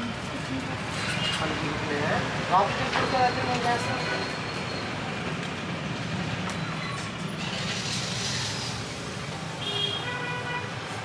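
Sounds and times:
street traffic: 0.0 - 11.0.

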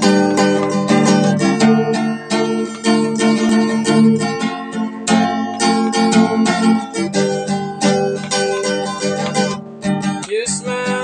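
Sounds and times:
acoustic guitar strumming chords: 0.0 - 11.0.

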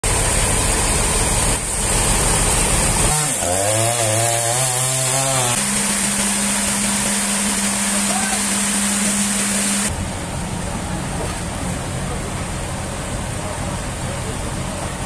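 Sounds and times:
loud engine noise: 0.0 - 15.0
chainsaw cutting into log: 2.2 - 9.9
steady machine hum: 4.6 - 15.0.

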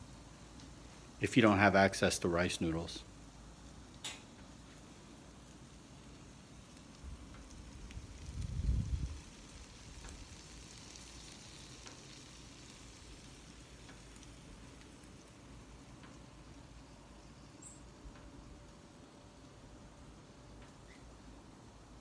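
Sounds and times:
egg sizzling in oil: 3.2 - 17.9.

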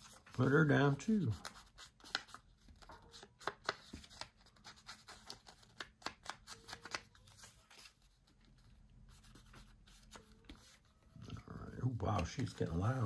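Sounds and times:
paper handling: 0.0 - 13.0
ink pad tapping paper: 12.0 - 13.0.

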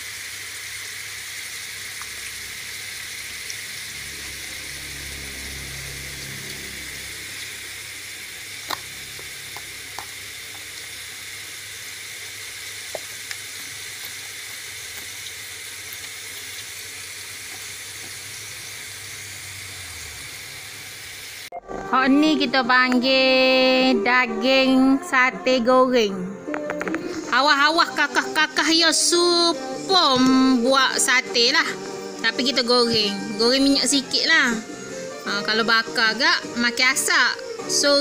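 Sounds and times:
meat sizzling in a pan: 0.0 - 21.5
oil popping: 1.6 - 20.6.

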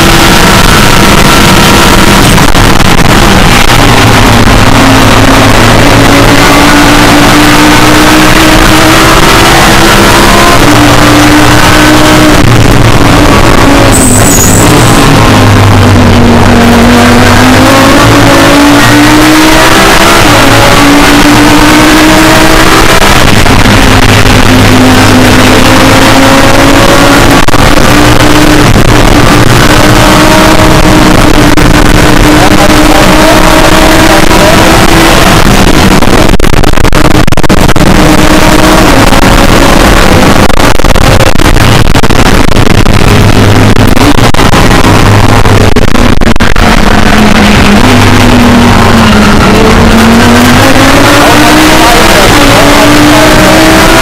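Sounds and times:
race car engine accelerating: 0.0 - 54.0.

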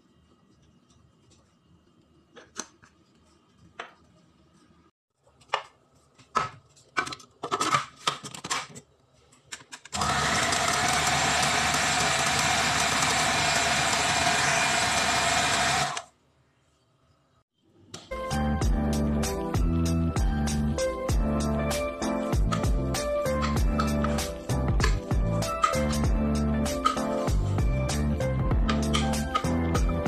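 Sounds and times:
food processor motor chopping: 10.0 - 16.1.

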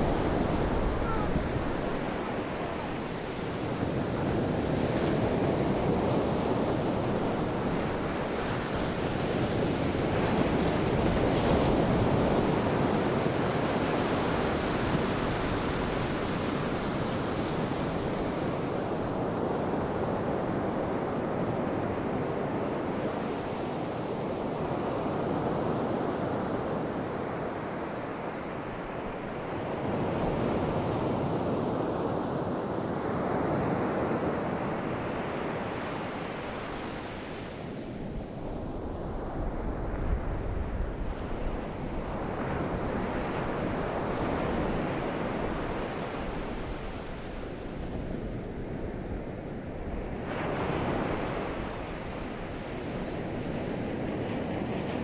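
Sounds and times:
ocean surf breaking: 0.0 - 19.0.

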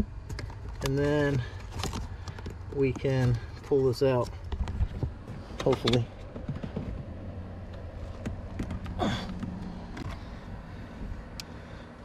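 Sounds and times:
low steady rumble: 0.0 - 12.0
plastic clicks and scrapes: 0.2 - 7.0.

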